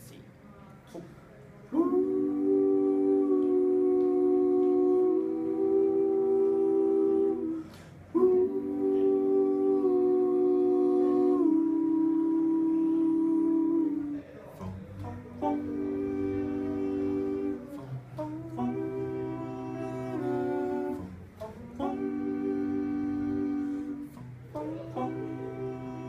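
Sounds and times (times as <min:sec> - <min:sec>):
male group singing harmony chords: 0:00.9 - 0:26.0
breath: 0:07.5 - 0:08.1.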